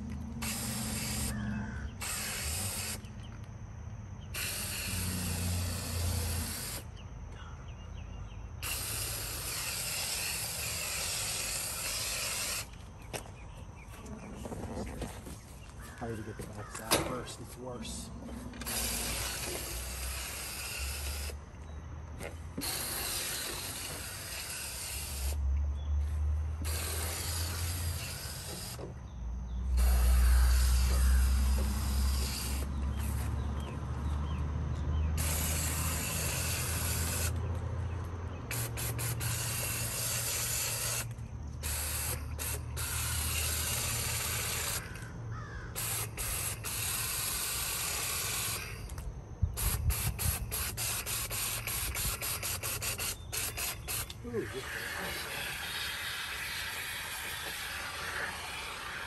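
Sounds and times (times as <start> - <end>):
water spraying from hose nozzle: 0.0 - 1.4, 2.0 - 3.1, 4.4 - 6.9, 8.6 - 12.7, 18.6 - 21.4, 22.6 - 25.4, 26.6 - 28.9, 29.7 - 33.5, 34.9 - 37.4, 38.5 - 45.0, 45.8 - 48.9, 49.6 - 59.0.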